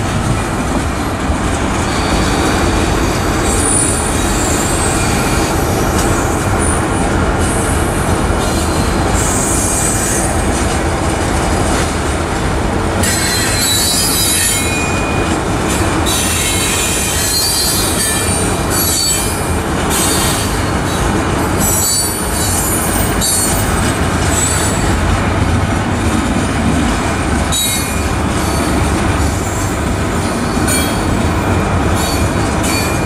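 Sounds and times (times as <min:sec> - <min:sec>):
train wheels rumbling on rails: 0:00.0 - 0:33.0
high-pitched wheel squeal: 0:13.0 - 0:15.3, 0:16.0 - 0:20.6, 0:21.6 - 0:23.6.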